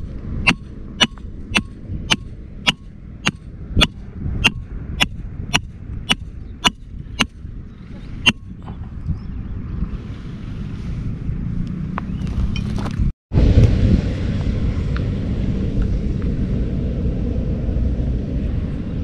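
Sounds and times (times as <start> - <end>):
sledgehammer striking metal stake: 0.4 - 7.4, 8.2 - 8.6.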